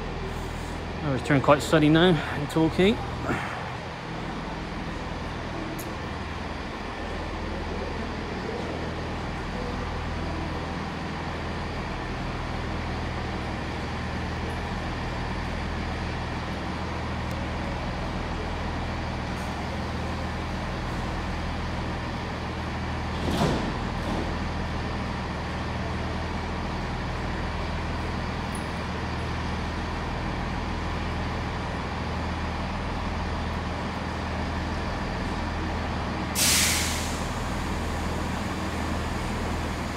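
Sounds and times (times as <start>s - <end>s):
train diesel engines humming: 0.0s - 39.9s.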